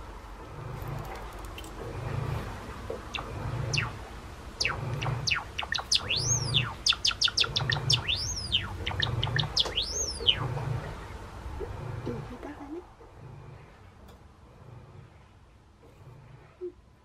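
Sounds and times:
bird whistles: 0:03.1 - 0:04.0, 0:04.6 - 0:10.6
sparrow clicks and chirps: 0:04.6 - 0:10.6.

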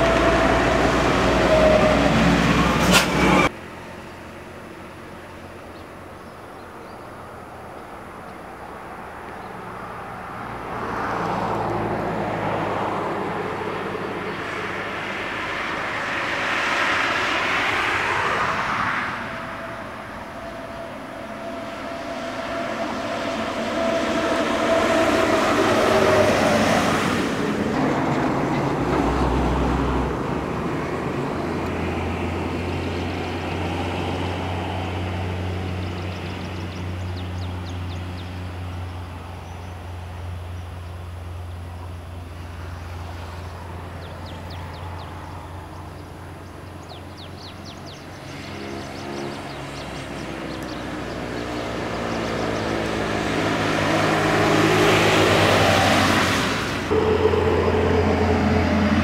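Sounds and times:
low drone: 0:12.6 - 0:35.3, 0:47.8 - 0:59.0
coach driving past: 0:39.7 - 0:59.0.

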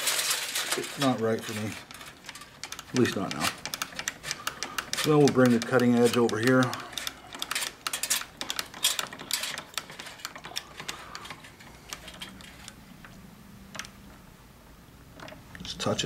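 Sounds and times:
lathe carriage metallic clicks: 0:00.6 - 0:13.1.

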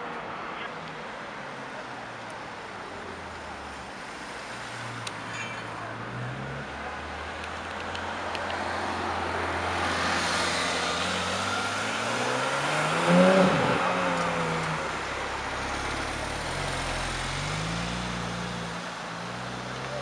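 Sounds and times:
car engine accelerating past: 0:09.6 - 0:18.8.

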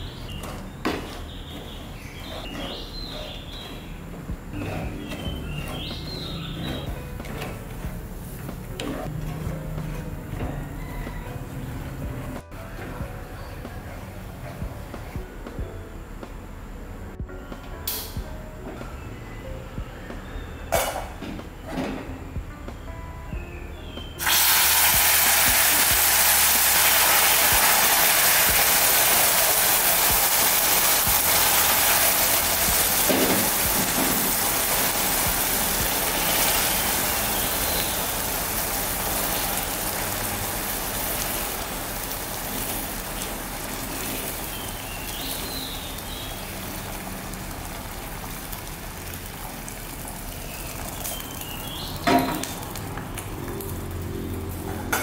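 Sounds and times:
caramel sizzling and bubbling: 0:00.0 - 0:11.2, 0:24.2 - 0:55.0.

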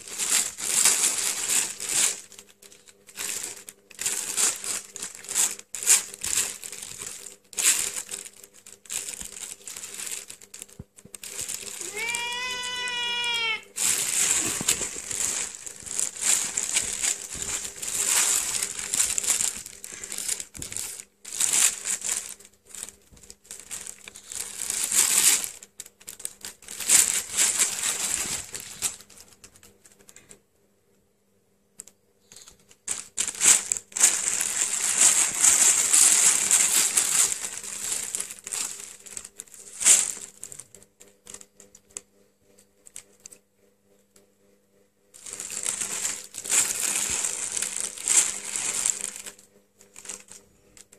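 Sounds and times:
plastic bag crinkling: 0:00.0 - 0:30.4, 0:32.2 - 0:41.7, 0:45.2 - 0:50.9
cat meowing: 0:11.8 - 0:13.8.

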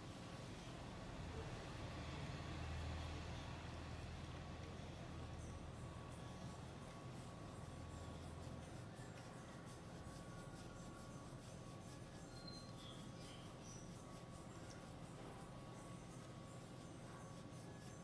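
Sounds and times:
fingers scratching cat fur: 0:00.0 - 0:18.0
low steady hum: 0:00.0 - 0:18.0.

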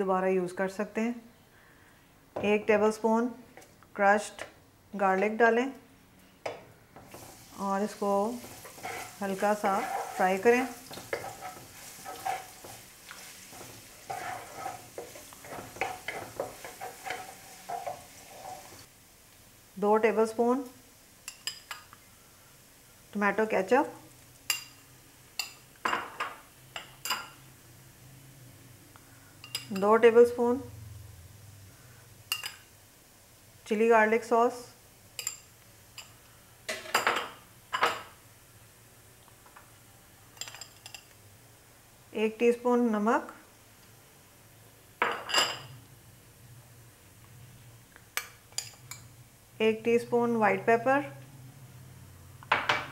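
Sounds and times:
garlic sizzling in oil: 0:06.9 - 0:28.1, 0:31.1 - 0:42.2
wooden spatula scraping pan: 0:07.0 - 0:18.9
dishes and utensils clinking: 0:10.9 - 0:12.8, 0:13.5 - 0:18.8, 0:36.7 - 0:38.2, 0:40.4 - 0:41.2, 0:45.0 - 0:45.8.

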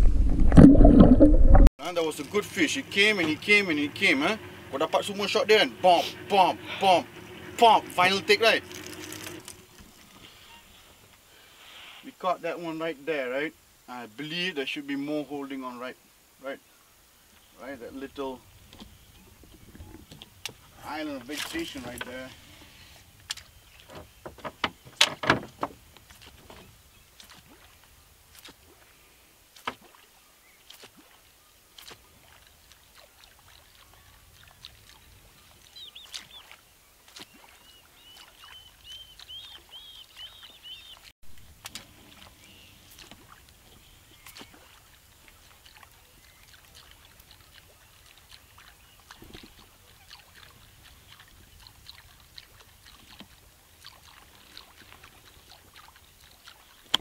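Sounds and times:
bird chirping: 0:35.2 - 0:41.1.

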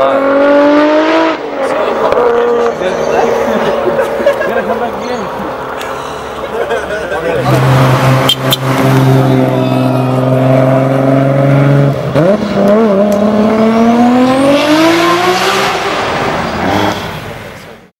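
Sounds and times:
car engine revving: 0:00.0 - 0:17.6.

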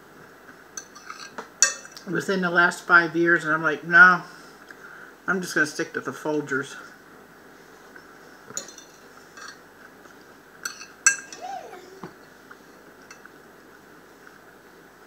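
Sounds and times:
fork clinking on plate: 0:10.6 - 0:11.4.

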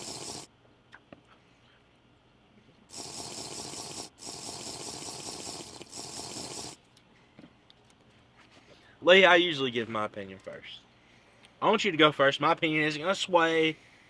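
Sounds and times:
man breathing hard through nose: 0:13.8 - 0:14.0.

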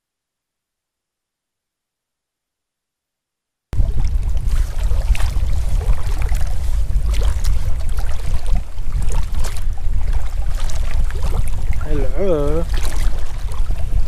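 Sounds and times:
water sloshing around wading legs: 0:03.8 - 0:14.0
wind buffeting microphone: 0:03.8 - 0:14.0.

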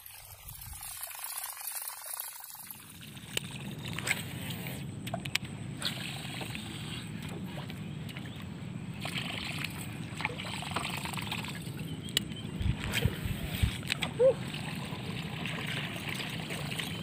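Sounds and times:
steady low rumble: 0:11.4 - 0:14.4.

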